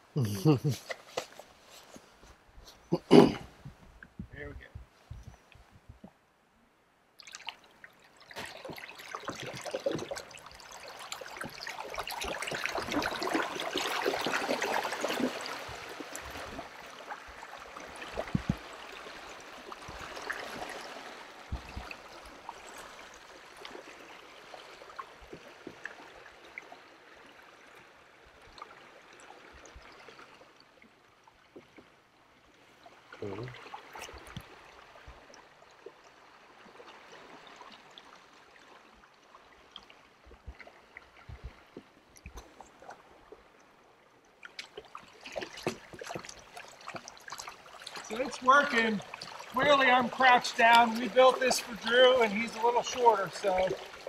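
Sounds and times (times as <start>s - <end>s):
water rushing and splashing off hull: 7.2s - 30.1s, 44.4s - 54.0s.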